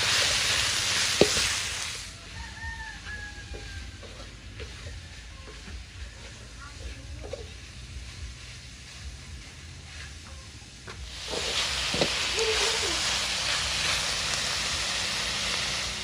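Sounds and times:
food sizzling in a wok: 0.0 - 16.0.

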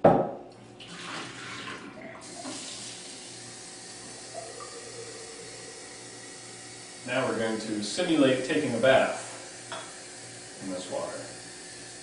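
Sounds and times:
water splashing into steel sink: 0.8 - 3.1
kitchen faucet running: 0.8 - 12.0.

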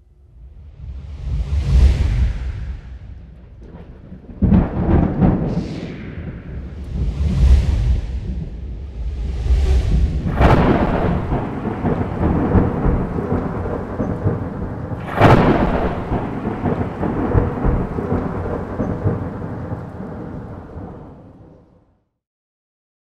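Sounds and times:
heavy booms with rumble: 0.5 - 21.1
rising whoosh: 4.5 - 21.3.

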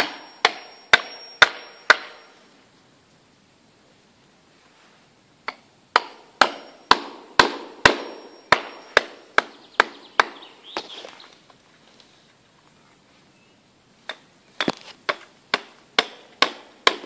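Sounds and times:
tool striking tree trunk: 0.0 - 2.3, 5.4 - 11.0, 14.0 - 17.0.

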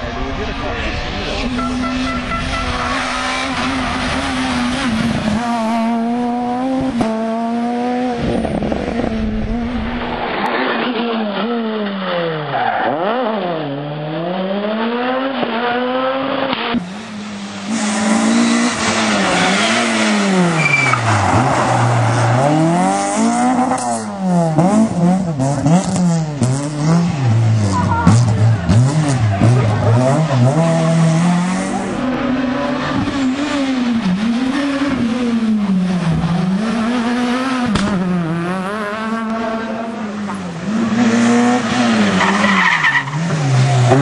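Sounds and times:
rally car engines revving: 0.0 - 44.0.

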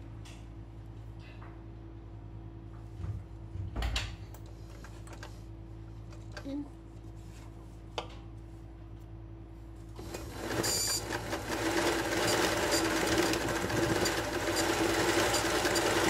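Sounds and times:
sewing machine stitching: 10.0 - 16.0.

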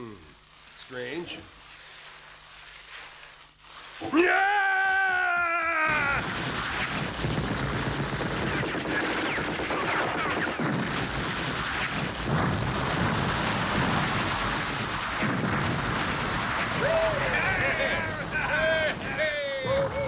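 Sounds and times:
explosions: 5.8 - 20.0
rapid gunfire: 5.9 - 19.8.

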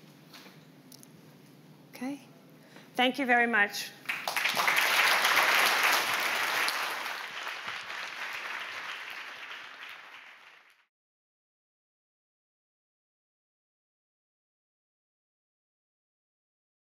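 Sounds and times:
audience applauding: 4.1 - 10.9.

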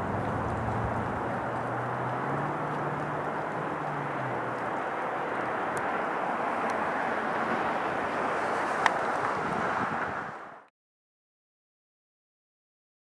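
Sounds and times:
low hum: 0.0 - 4.8
distant jet noise: 0.0 - 10.7.

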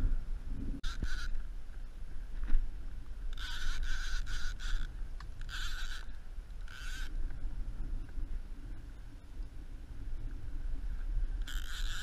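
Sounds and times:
wind rumbling on microphone: 0.0 - 12.0
scratchy scraping bursts: 0.8 - 1.4, 3.4 - 7.1, 11.5 - 12.0.

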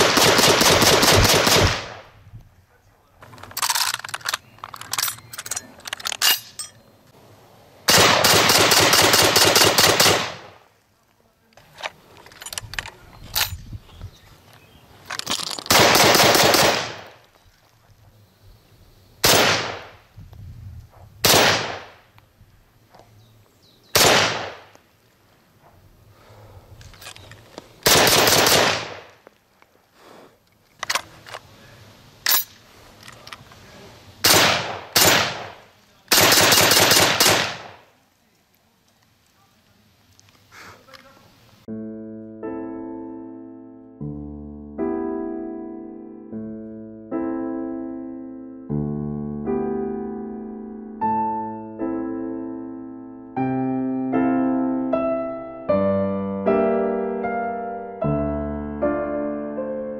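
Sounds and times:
rifle shots: 0.0 - 2.2, 7.9 - 10.7, 15.6 - 17.2, 19.2 - 20.0, 21.2 - 22.1, 23.9 - 24.8, 27.8 - 29.2, 34.2 - 37.9
faint clicks: 38.3 - 39.4, 40.0 - 41.2.

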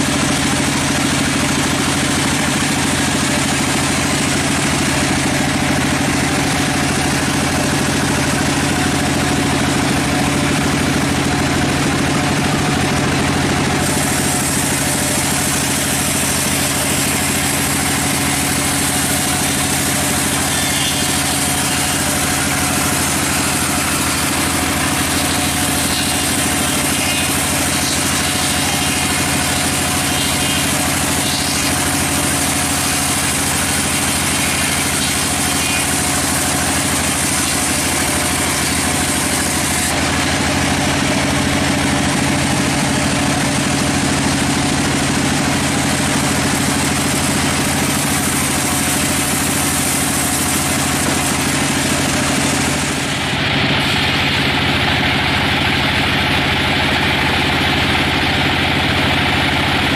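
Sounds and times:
band saw blade sawing log: 13.6 - 40.2
mill drive hum: 13.8 - 40.4.

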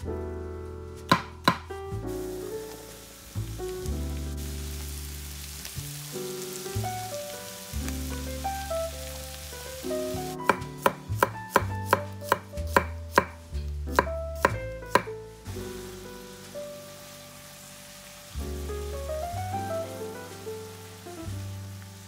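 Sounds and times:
knife chopping on wooden board: 1.1 - 1.7, 10.5 - 15.1.

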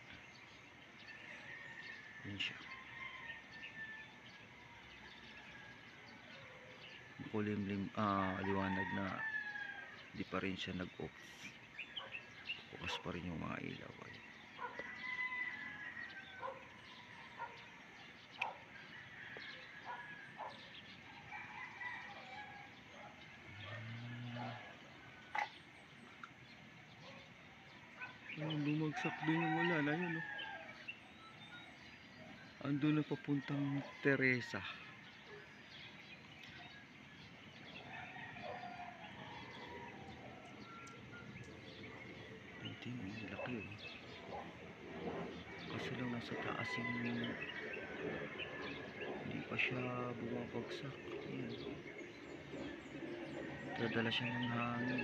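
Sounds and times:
distant bird chirps: 0.0 - 55.0
faint outdoor background haze: 0.0 - 55.0
rooster crowing: 1.0 - 6.4, 8.2 - 10.0, 14.6 - 17.5, 18.8 - 25.4, 28.4 - 30.9, 37.8 - 41.3, 45.8 - 49.5, 53.6 - 55.0.

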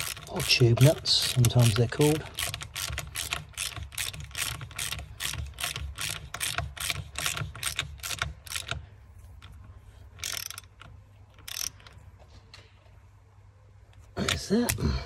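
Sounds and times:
ratchet wrench clicking: 0.0 - 8.8, 10.2 - 12.0.

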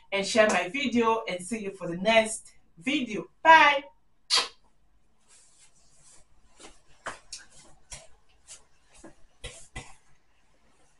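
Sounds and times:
clothing and hair rustling: 5.0 - 10.9
soft brushing strokes: 5.1 - 10.9.

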